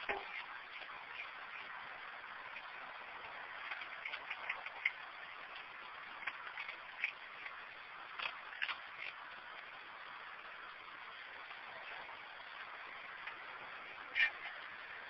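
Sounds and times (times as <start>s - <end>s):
kibble crunching: 0.0s - 1.7s, 2.5s - 9.7s
steady hiss: 0.0s - 15.0s.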